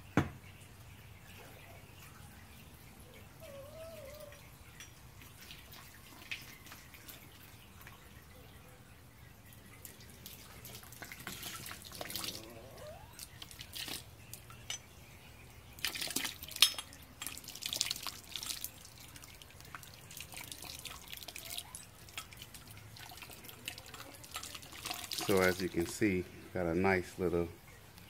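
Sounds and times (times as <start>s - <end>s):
water trickling and dripping: 0.0s - 28.0s
water splashes: 4.0s - 14.8s, 15.6s - 27.4s.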